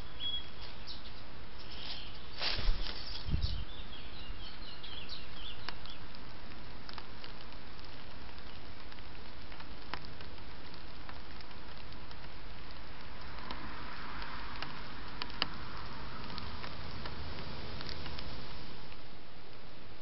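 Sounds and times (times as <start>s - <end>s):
small birds twittering: 0.0s - 6.2s
microphone hiss: 0.0s - 20.0s.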